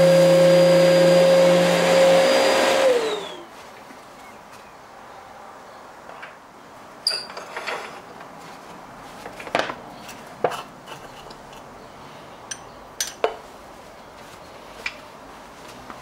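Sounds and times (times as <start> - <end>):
metal tin clinking: 7.0 - 7.6.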